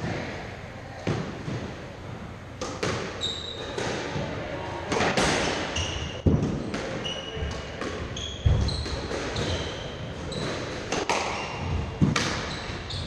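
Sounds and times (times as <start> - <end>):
shoes squeaking on wooden floor: 3.2 - 3.8, 5.4 - 7.5, 8.1 - 10.7.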